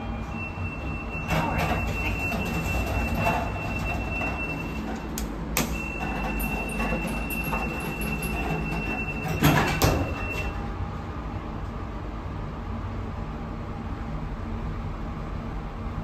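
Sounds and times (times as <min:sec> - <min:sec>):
lift doors sliding open: 0:00.0 - 0:10.7.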